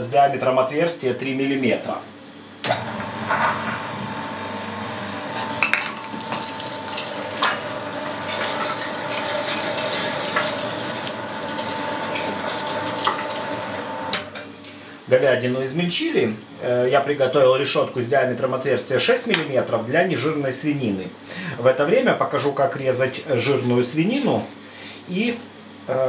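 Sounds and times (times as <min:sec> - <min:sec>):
electric meat grinder whine: 0:02.6 - 0:14.3.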